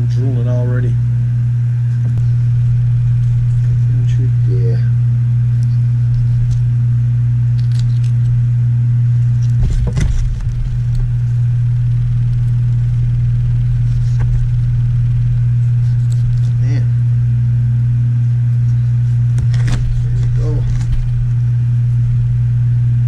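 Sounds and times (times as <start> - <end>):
loud steady low hum: 0.0 - 23.0.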